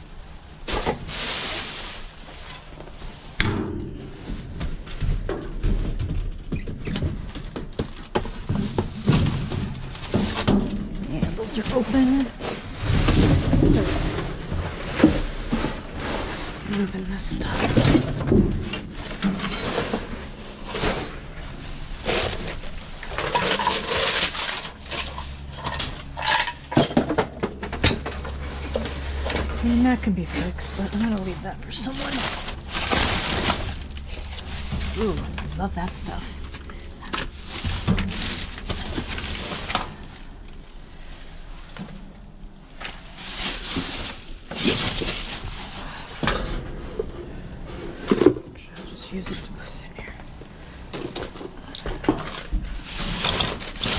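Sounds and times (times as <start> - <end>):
plastic bags and cardboard rustling: 0.0 - 53.9
knocks and clinks in metal dumpster: 3.4 - 4.6.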